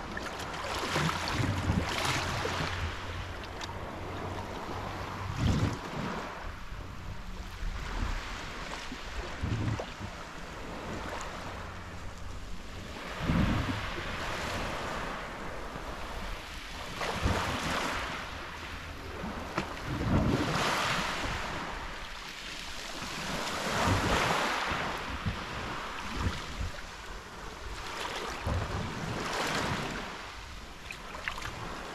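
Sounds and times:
wind thumping on microphone: 1.0s - 3.1s, 4.4s - 8.4s, 9.0s - 10.2s, 13.1s - 14.9s, 17.0s - 17.8s, 19.4s - 21.7s, 28.4s - 30.0s
waves washing over pebble beach: 19.1s - 26.9s.

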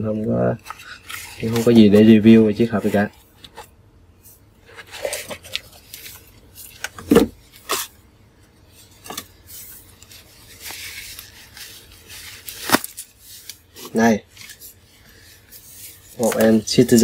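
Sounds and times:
packaging clicks and rubbing: 9.0s - 14.6s.

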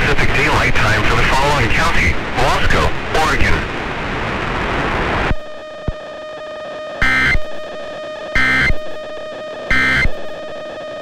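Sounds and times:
steady held tone: 5.3s - 11.0s
digital data tone bursts: 7.0s - 11.0s.

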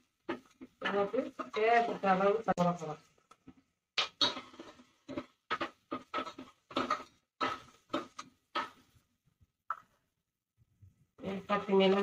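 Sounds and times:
metal spoon scraping a metal pot: 4.0s - 8.8s.

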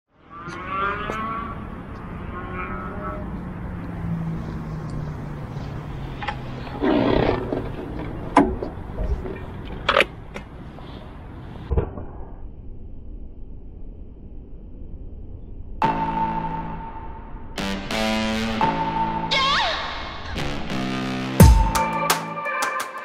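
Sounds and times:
motorcycle engine roar: 0.2s - 9.5s.

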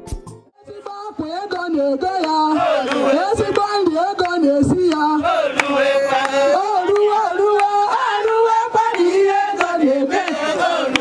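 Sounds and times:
percussive beat: 0.0s - 2.4s
women singing in unison: 0.6s - 11.0s.

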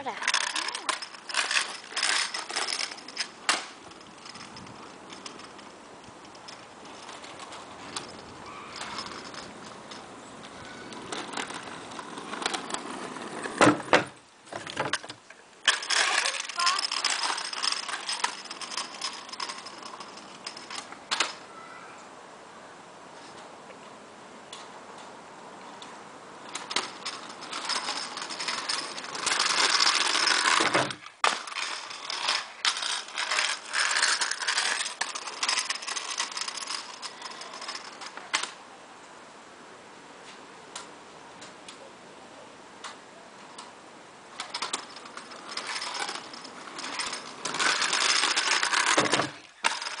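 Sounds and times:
rattles and clicks: 0.0s - 21.4s, 26.4s - 38.6s, 44.3s - 50.0s
small wheels rolling on asphalt: 0.0s - 21.5s, 25.6s - 38.6s, 42.8s - 50.0s.

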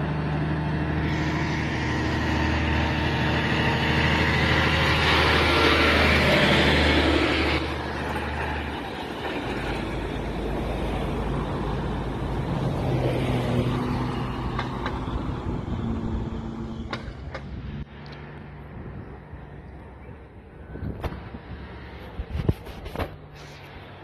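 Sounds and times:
light traffic: 0.0s - 24.0s
truck passing by: 0.0s - 24.0s.

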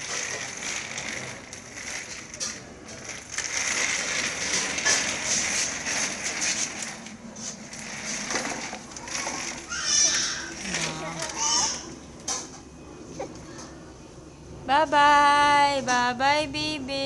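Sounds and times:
baby walker rattling on hard floor: 0.0s - 12.5s.

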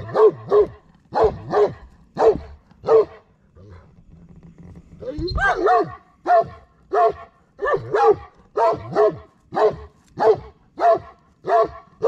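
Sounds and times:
dog barking deeply: 0.0s - 3.2s, 5.0s - 12.0s.

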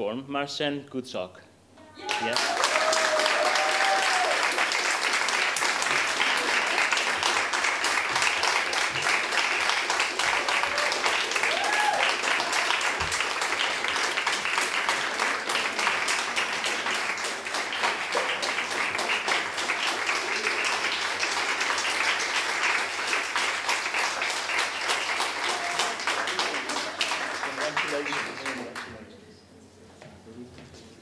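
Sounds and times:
audience applauding: 2.0s - 29.0s.

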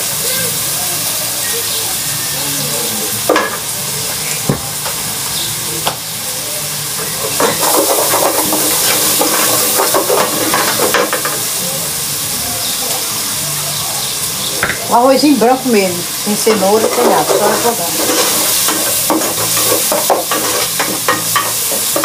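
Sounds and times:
garlic sizzling in oil: 0.0s - 22.0s
stirring and scraping in pot: 7.1s - 11.3s, 16.6s - 22.0s.

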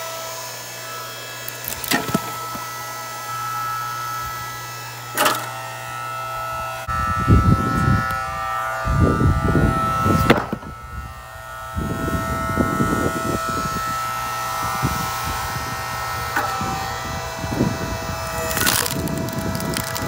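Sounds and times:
log splitter motor whine: 0.0s - 20.0s
sharp wood crack: 1.5s - 2.6s, 10.2s - 10.6s, 18.3s - 20.0s.

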